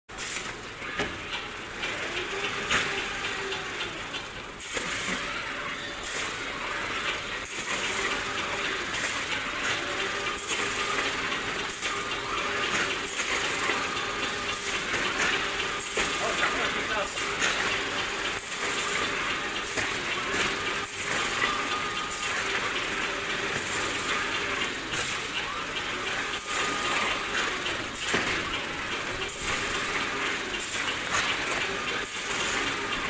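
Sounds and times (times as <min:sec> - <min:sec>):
robot arm and conveyor clattering: 0:00.1 - 0:33.0.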